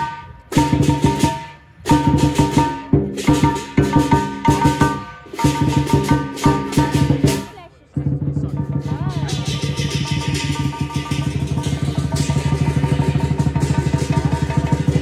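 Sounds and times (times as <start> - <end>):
drum gong and cymbals: 0.0 - 15.0.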